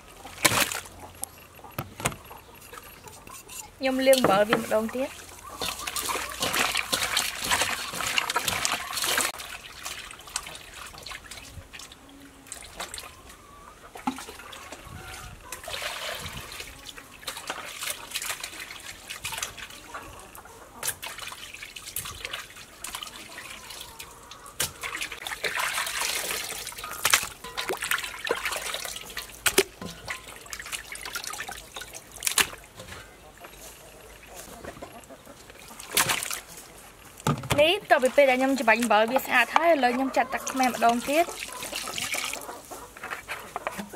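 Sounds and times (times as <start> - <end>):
water trickling and dripping: 3.9 - 13.4, 14.0 - 42.8
wet squishing: 5.1 - 11.9, 35.4 - 42.6.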